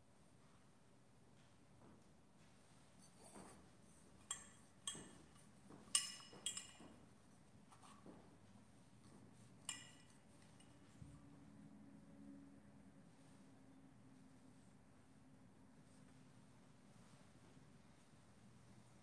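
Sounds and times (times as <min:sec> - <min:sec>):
metal vessels clinking: 0:04.2 - 0:07.0, 0:09.6 - 0:10.8.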